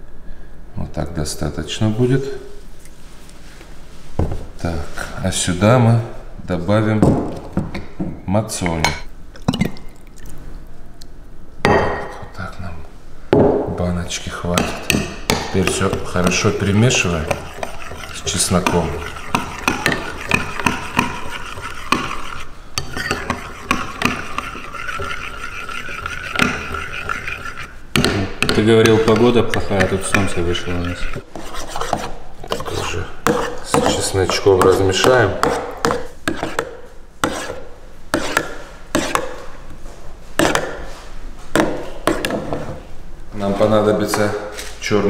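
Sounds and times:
metal spoon stirring in bowl: 14.4 - 37.6, 38.2 - 39.3, 41.6 - 42.6.

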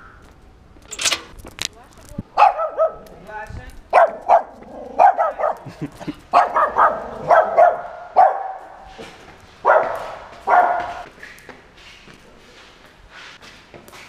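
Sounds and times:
small dog barking: 2.4 - 3.1, 3.9 - 5.7, 6.3 - 8.8, 9.6 - 11.0.

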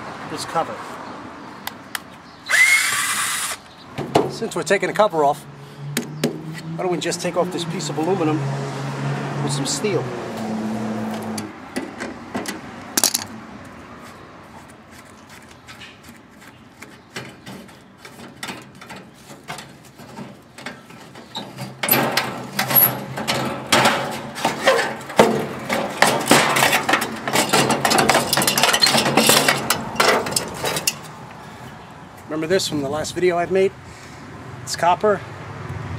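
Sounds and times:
metal parts clinking and rattling: 12.4 - 13.3, 18.2 - 31.1
hand tools on metal: 14.9 - 31.2.

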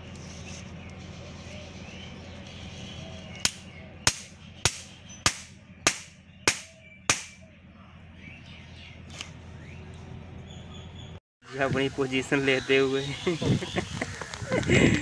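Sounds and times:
hammer striking steel pin: 3.4 - 7.4.

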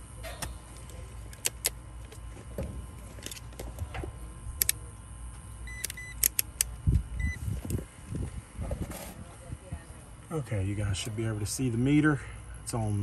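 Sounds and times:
steady low hum: 0.0 - 13.0
plastic clicks of meter: 0.4 - 2.2, 4.6 - 4.8, 5.7 - 6.7
short high beeps: 5.7 - 6.2.

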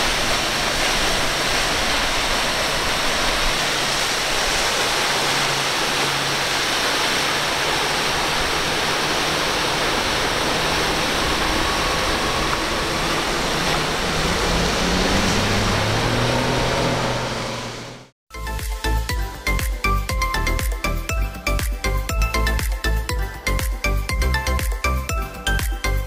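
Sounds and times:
outboard motors droning: 0.0 - 18.2
waves and boat wake rushing: 0.0 - 26.0.

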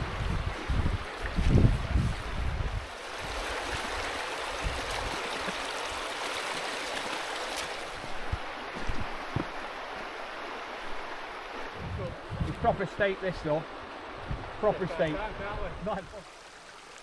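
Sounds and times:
river water rushing over stones: 0.0 - 17.0
soft low thumps: 14.2 - 14.5.

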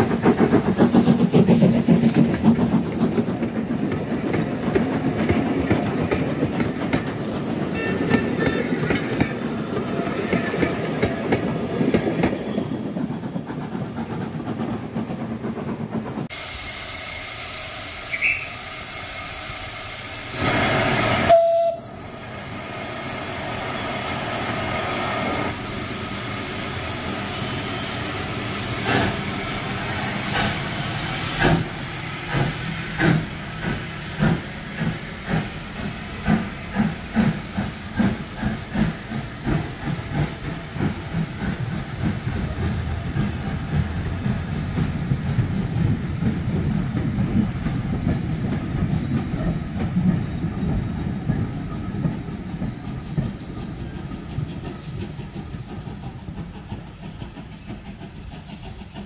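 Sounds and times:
steam hissing: 0.0 - 7.6, 16.2 - 59.0
steam whistle: 16.6 - 19.0, 20.7 - 22.2
locomotive exhaust beats: 25.8 - 59.0.

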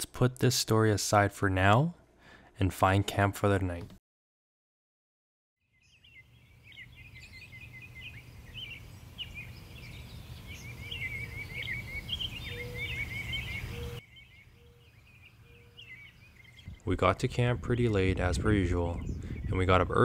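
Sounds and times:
small birds chirping and trilling: 5.6 - 20.0.

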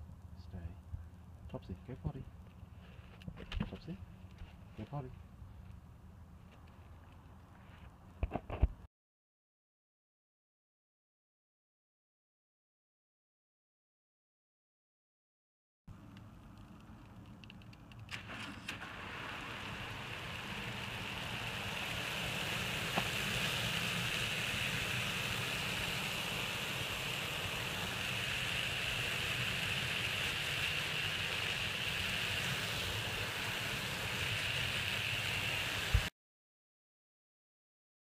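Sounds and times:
hose spraying water: 18.1 - 36.1.

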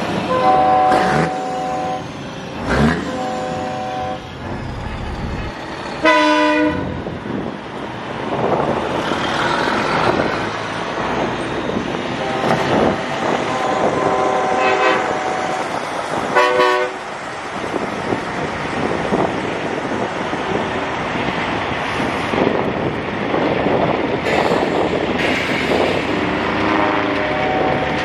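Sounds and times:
trucks driving past: 0.0 - 28.0
truck air horn blasts: 0.2 - 2.1, 2.8 - 4.3, 6.0 - 7.0, 12.2 - 17.0.

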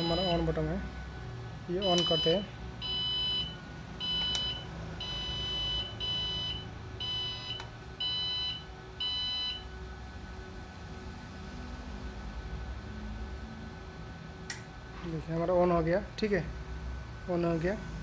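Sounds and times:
high electronic beeps: 0.0 - 0.5, 1.8 - 9.6.

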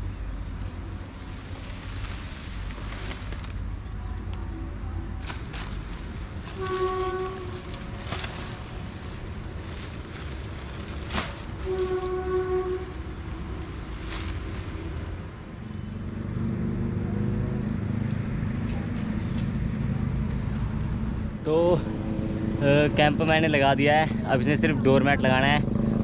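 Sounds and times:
vehicle engine: 0.0 - 26.0
horn blasts: 6.5 - 7.8, 11.6 - 13.2.

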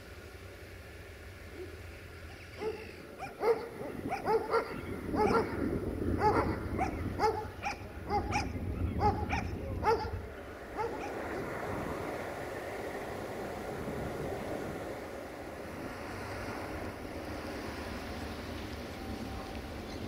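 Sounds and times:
dog barking: 1.6 - 11.3.

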